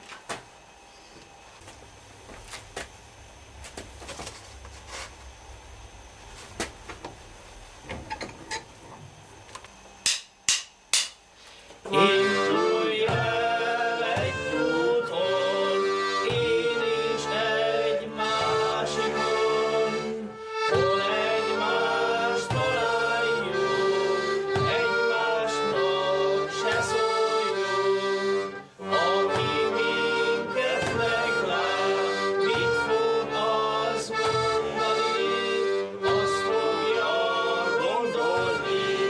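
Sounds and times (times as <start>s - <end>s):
accordion playing lively tune: 11.9s - 39.0s.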